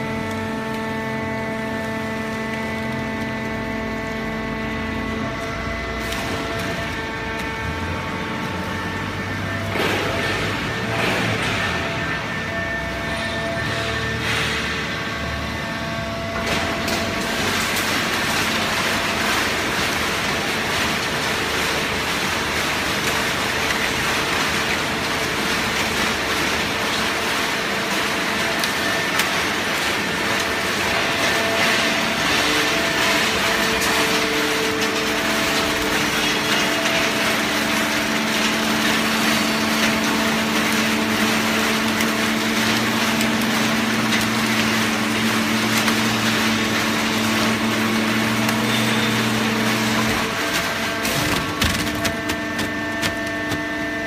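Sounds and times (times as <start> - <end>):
motor hum: 0.0 - 54.0
baler mechanical din: 8.3 - 15.2.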